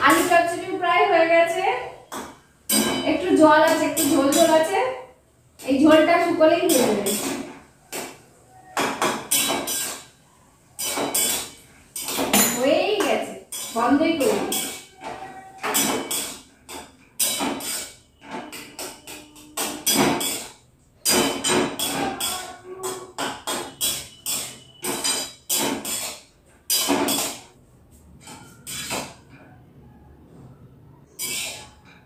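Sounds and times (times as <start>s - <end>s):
metal spatula scraping a pan: 8.7s - 27.5s, 28.2s - 29.4s, 31.1s - 32.0s.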